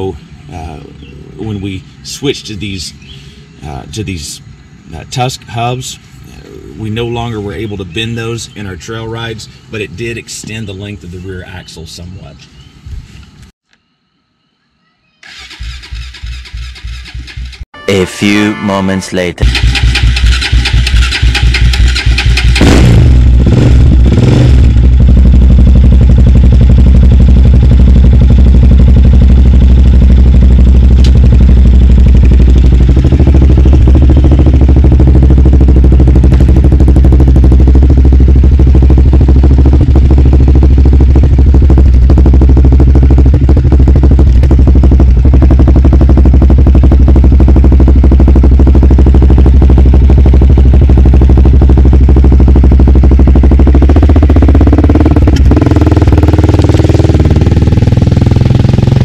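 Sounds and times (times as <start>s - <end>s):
quad engine idling: 19.4s - 23.4s, 24.6s - 59.0s.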